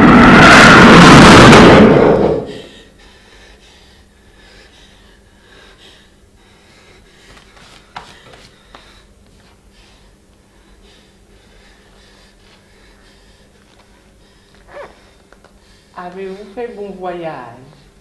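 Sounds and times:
loud rumbling rush: 0.0 - 2.7
faint breathing: 2.4 - 16.7.

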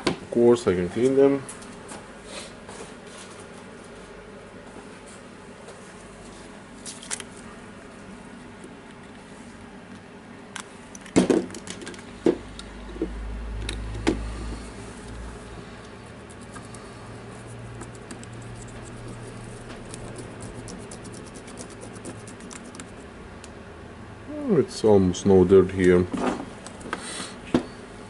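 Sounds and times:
cotton swab scratching contacts: 16.1 - 23.1.

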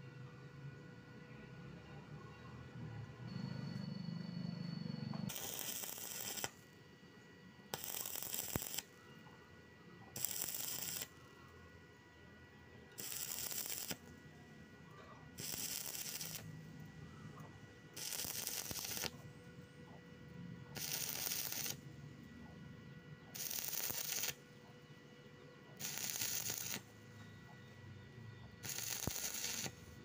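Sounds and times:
welding arc crackling and hissing: 5.3 - 6.7, 7.7 - 8.9, 10.2 - 11.1, 13.0 - 14.1, 15.4 - 16.6, 18.0 - 19.2, 20.8 - 21.8, 23.3 - 24.4, 25.8 - 27.0, 28.6 - 30.0.

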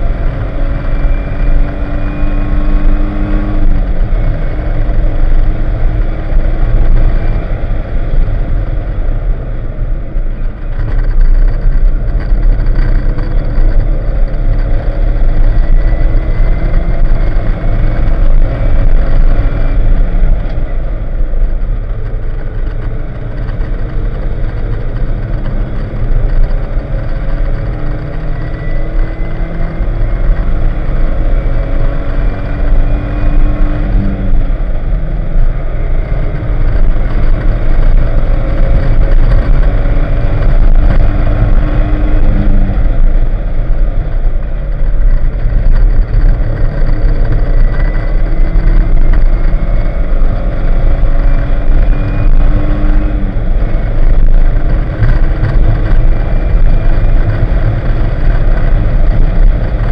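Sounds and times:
car engine accelerating: 0.0 - 59.9
wind and road noise: 0.0 - 59.9.

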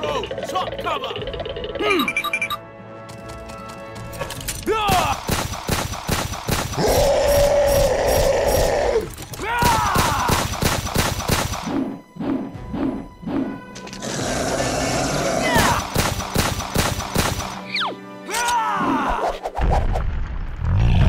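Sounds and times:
rapid gunfire: 4.9 - 7.0, 9.6 - 11.7, 15.7 - 17.6
monster roar: 6.8 - 9.1, 14.0 - 15.9, 20.6 - 21.0.

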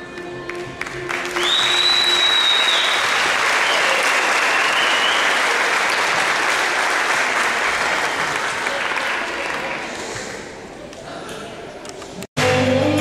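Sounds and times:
audience applauding: 0.4 - 10.5
shrill whistle: 1.4 - 5.4.

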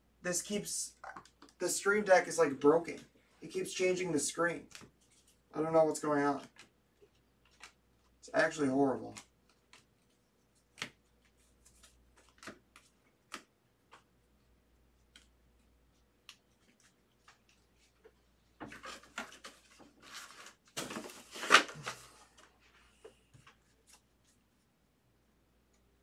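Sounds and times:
cards rustling and sliding: 6.1 - 14.1, 14.9 - 24.4
cards tapping and clicking: 6.4 - 8.1, 9.1 - 14.1.

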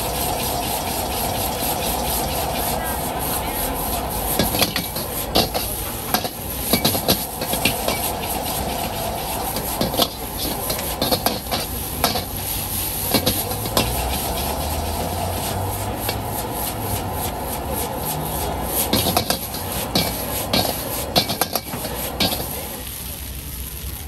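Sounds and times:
gas burner flame rushing: 0.0 - 24.0
sizzling: 0.0 - 24.0
metal ladle scraping a wok: 0.1 - 22.7.

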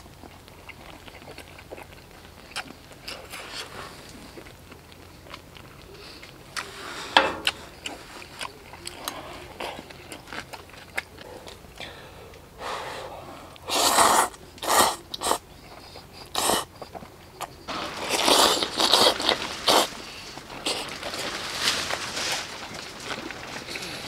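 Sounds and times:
person slurping noodles: 13.7 - 15.4.

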